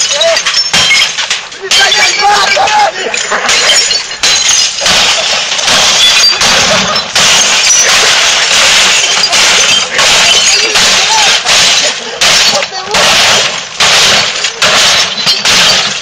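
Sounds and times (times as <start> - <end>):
glass breaking: 0.0 - 16.0
bat smashing television: 3.4 - 16.0
plastic crunching: 4.2 - 16.0.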